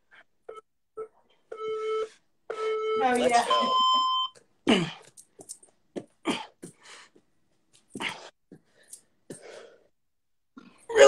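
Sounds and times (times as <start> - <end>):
person grunting: 4.7 - 5.0
person breathing hard: 6.2 - 7.3, 7.9 - 10.0.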